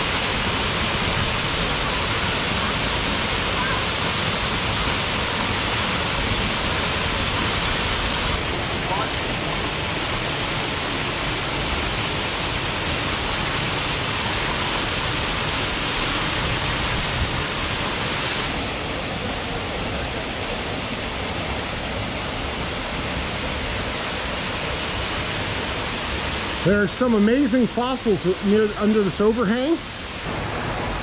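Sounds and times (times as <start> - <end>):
waterfall splashing: 0.0 - 31.0.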